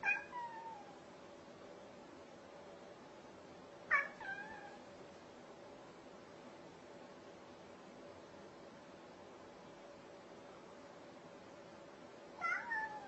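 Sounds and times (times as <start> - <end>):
cat meowing: 0.0 - 1.0, 3.9 - 4.8, 12.4 - 13.0.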